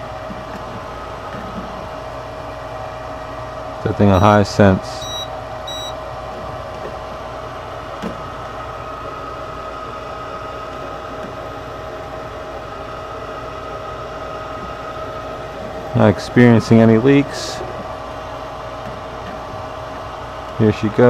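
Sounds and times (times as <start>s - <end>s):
furnace motor humming: 0.0s - 21.0s
gas detector beeps: 4.2s - 4.4s, 5.0s - 6.0s.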